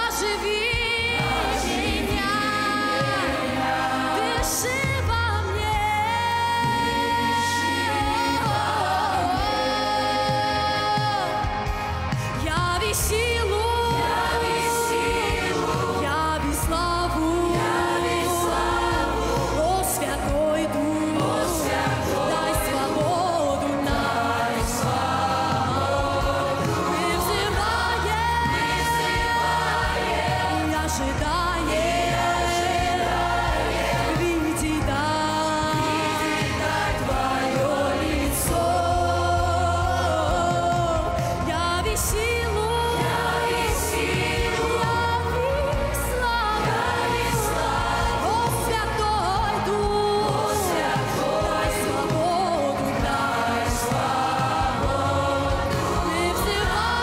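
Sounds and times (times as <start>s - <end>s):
choir singing worship song: 0.0s - 57.0s
women singing into microphones: 0.0s - 57.0s.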